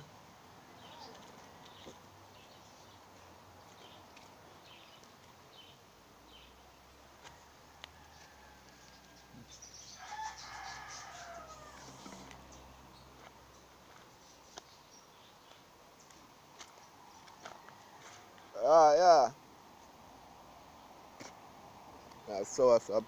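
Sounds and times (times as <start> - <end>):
rooster crowing: 7.2 - 12.6, 17.4 - 18.4.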